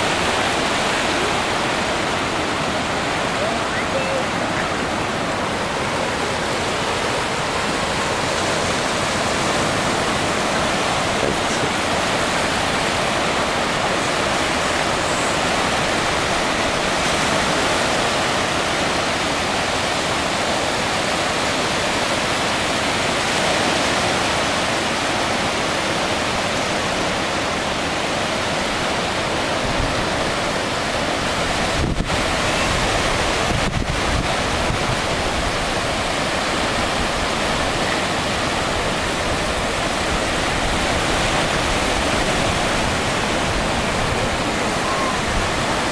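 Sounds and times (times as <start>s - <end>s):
surf waves breaking: 0.0s - 45.9s
wind buffeting microphone: 29.5s - 45.9s.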